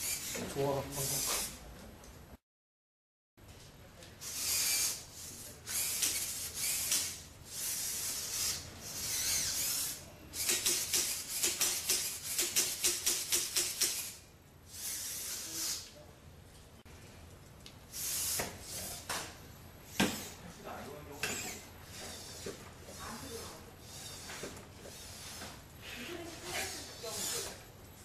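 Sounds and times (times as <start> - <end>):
robot servos whirring: 0.0 - 1.6, 4.2 - 16.0, 17.9 - 19.1, 21.2 - 27.6.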